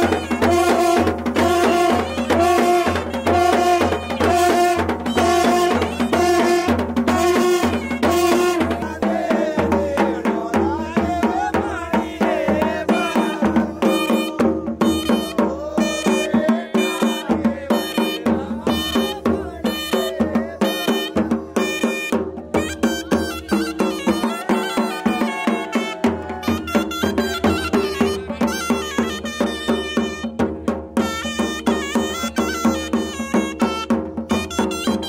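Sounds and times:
hand drum beat: 0:00.0 - 0:35.0
folk music melody: 0:31.0 - 0:35.0.

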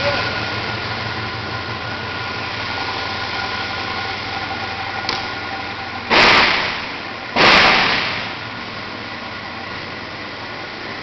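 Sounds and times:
machine running with hum: 0:00.0 - 0:11.0
burst of rushing noise: 0:06.1 - 0:08.4.

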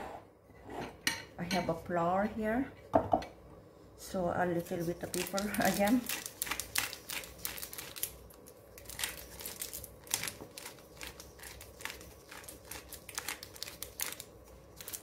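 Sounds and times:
fingers mixing flour in glass bowl: 0:04.5 - 0:08.1, 0:08.8 - 0:15.0.

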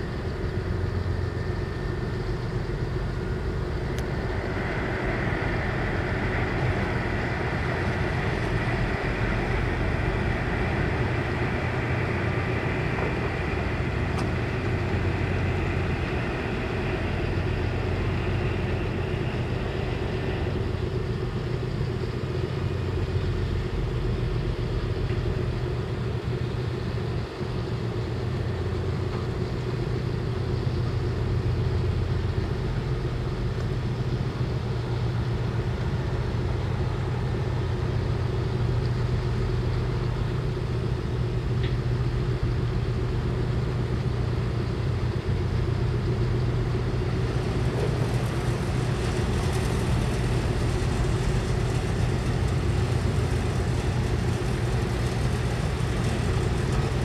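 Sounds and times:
ship engine rumbling: 0:00.0 - 0:57.0
rushing hiss: 0:46.9 - 0:57.0.

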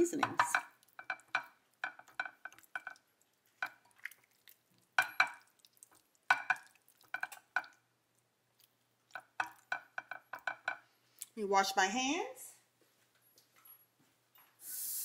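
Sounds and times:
wet squelching of meat: 0:02.6 - 0:09.2.

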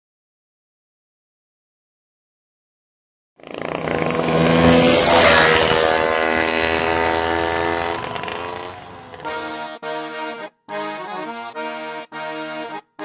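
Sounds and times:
racing motorcycle engine at full throttle: 0:03.4 - 0:09.5.

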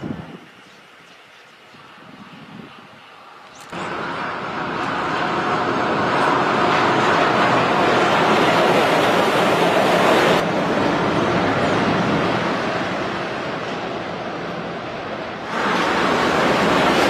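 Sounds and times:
wind on microphone: 0:00.0 - 0:05.0
monorail car rushing noise: 0:00.0 - 0:17.0.

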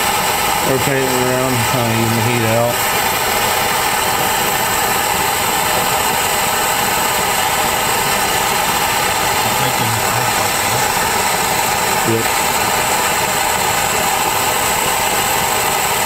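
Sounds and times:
gas torch hissing: 0:00.0 - 0:16.0.

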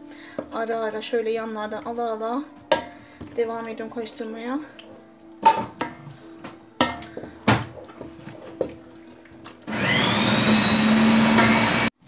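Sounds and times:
food processor whining: 0:09.6 - 0:12.0.

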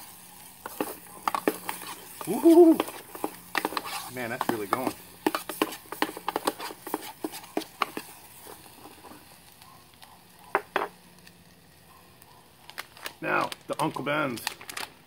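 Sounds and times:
food sizzling: 0:00.0 - 0:15.0
spoon scraping metal cup: 0:00.6 - 0:08.6.

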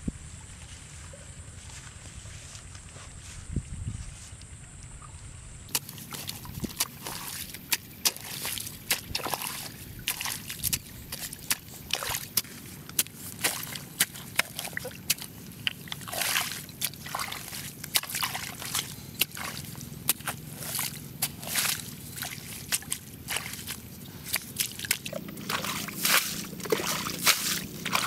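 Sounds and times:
spade chopping into mud: 0:05.7 - 0:15.4, 0:16.0 - 0:28.0
muddy water sloshing: 0:05.7 - 0:28.0.

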